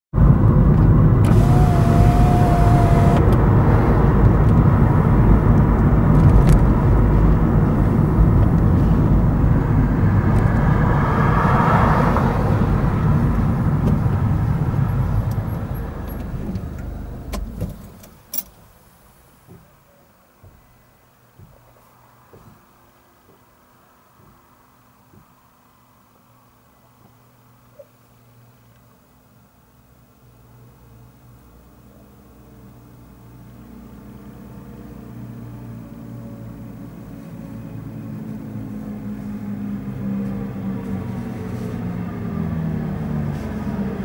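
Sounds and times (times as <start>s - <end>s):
car engine and tyre rumble: 0.1s - 44.0s.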